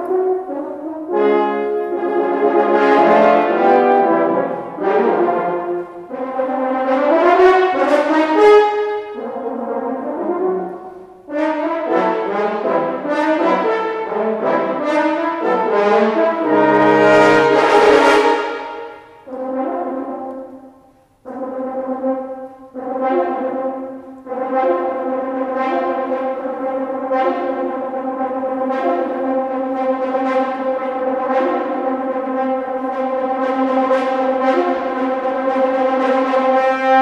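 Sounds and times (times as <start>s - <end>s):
french horns playing chords: 0.0s - 37.0s.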